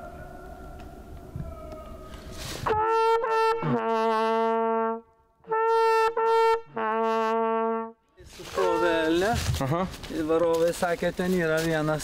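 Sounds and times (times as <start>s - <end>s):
hunting horn call: 1.6s - 9.3s.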